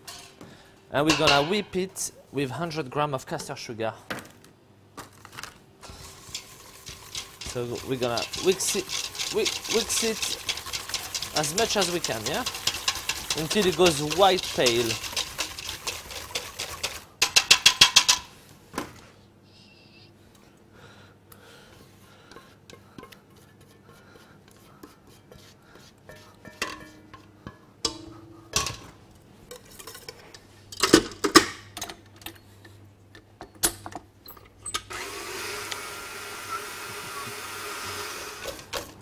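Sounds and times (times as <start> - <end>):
whisk clinking against metal bowl: 6.0 - 18.2.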